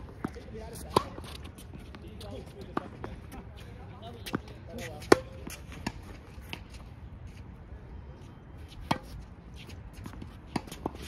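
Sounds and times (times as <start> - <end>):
racket hitting tennis ball: 0.0 - 1.9, 4.2 - 6.8, 8.8 - 11.0
tennis ball bouncing: 0.0 - 2.0, 2.6 - 3.2, 4.2 - 6.8, 8.8 - 11.0.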